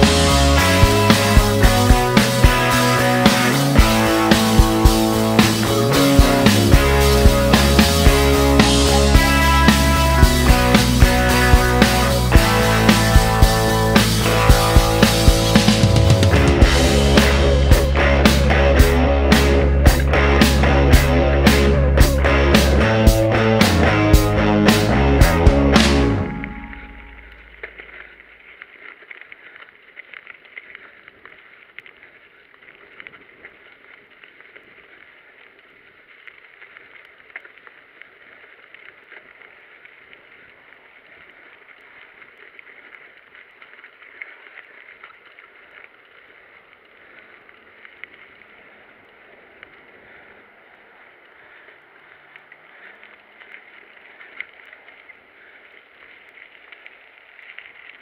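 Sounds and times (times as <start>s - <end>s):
tyres hissing on gravel: 0.0s - 34.2s.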